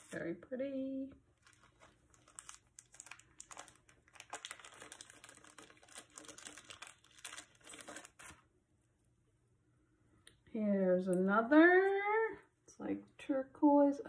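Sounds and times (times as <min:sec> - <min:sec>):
plastic bag crinkling: 0:01.3 - 0:08.4.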